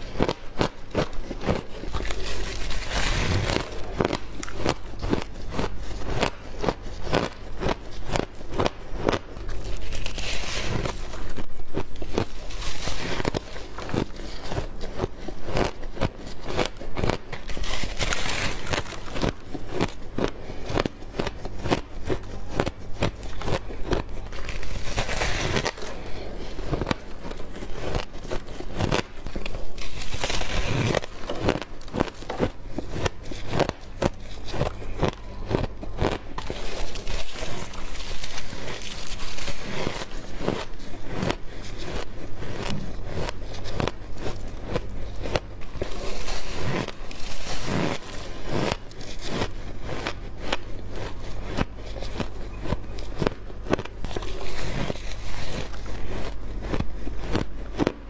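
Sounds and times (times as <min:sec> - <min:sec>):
ice crunching while chewed: 0:00.0 - 0:58.0
steady low hum: 0:00.0 - 0:58.0.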